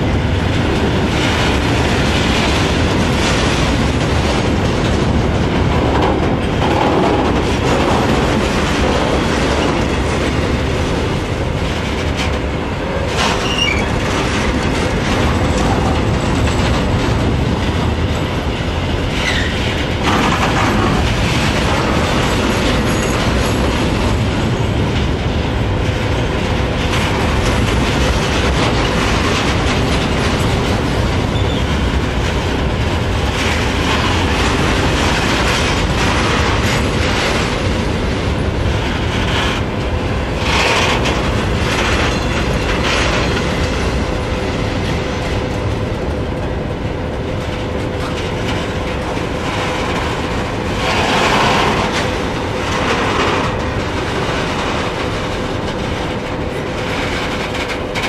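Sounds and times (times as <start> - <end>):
train wheels rumbling over rails: 0.0 - 58.0
wheel squeals: 13.2 - 14.0, 19.2 - 19.6, 31.3 - 31.7.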